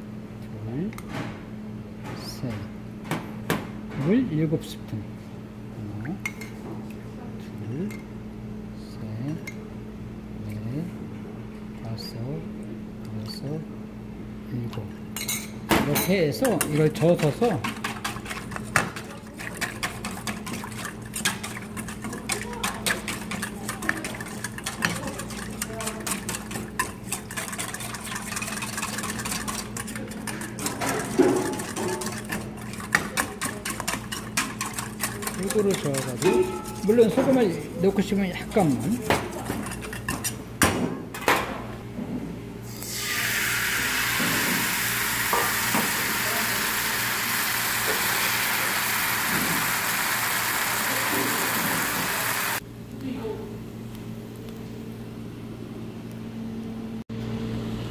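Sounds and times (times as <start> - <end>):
whisk scraping metal bowl: 16.0 - 40.5
batter sizzling in a frying pan: 43.0 - 52.6.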